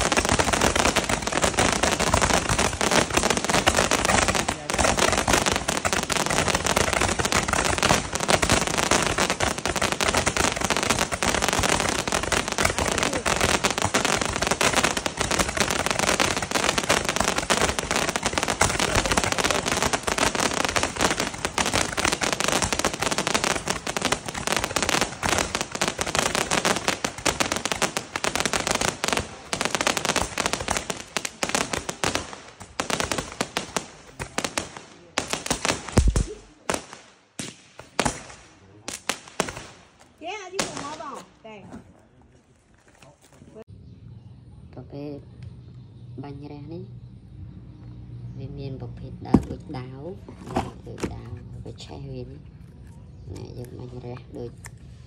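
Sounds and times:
fireworks shots crackling: 0:00.0 - 0:41.5.

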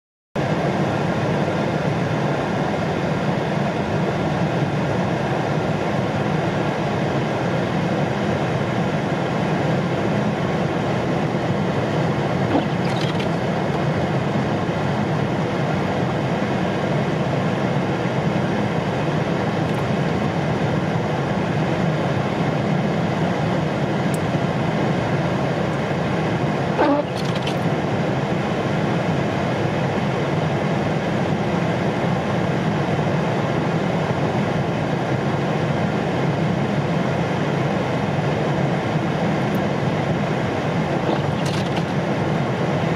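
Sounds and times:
car road and engine noise: 0:00.4 - 0:42.9.

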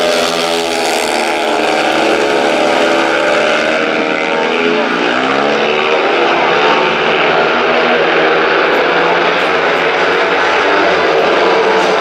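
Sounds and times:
motorcycle engines racing: 0:00.0 - 0:12.0.

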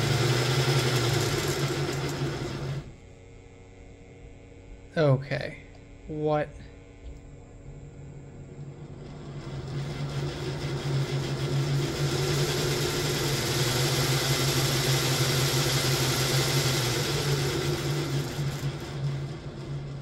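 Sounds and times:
model locomotive motor whir: 0:00.0 - 0:03.6, 0:07.8 - 0:20.0.

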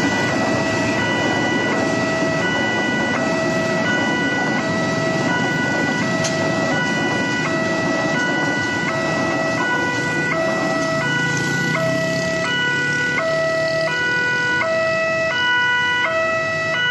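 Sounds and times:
motorcycle engines: 0:00.0 - 0:16.9
passing train rumble: 0:00.0 - 0:16.9
two-tone crossing alarm chime: 0:00.0 - 0:16.9.

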